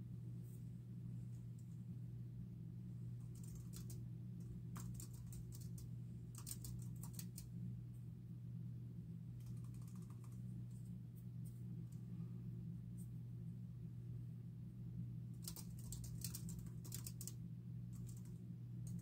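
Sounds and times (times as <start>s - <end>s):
steady low hum: 0.0s - 19.0s
typing on computer keyboard: 3.3s - 4.0s, 4.7s - 7.5s, 9.4s - 10.4s, 15.4s - 19.0s.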